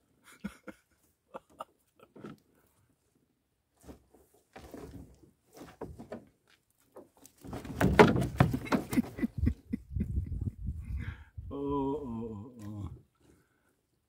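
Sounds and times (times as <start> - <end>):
net hauled into plastic tub: 7.0 - 8.9.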